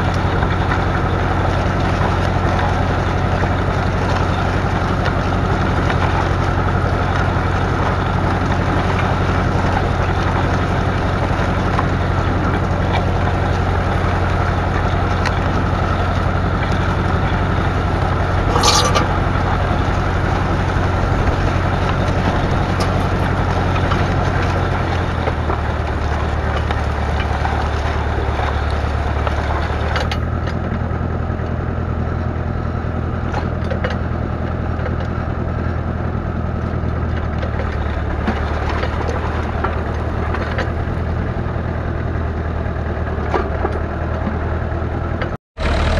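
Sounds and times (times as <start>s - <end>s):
diesel engine running: 0.0s - 45.9s
short clank: 18.5s - 19.2s.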